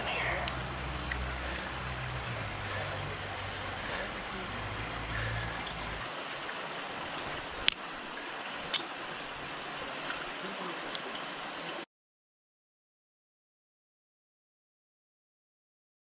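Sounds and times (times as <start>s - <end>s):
low rumble: 0.0s - 6.1s
river water trickling over rocks: 0.0s - 11.8s.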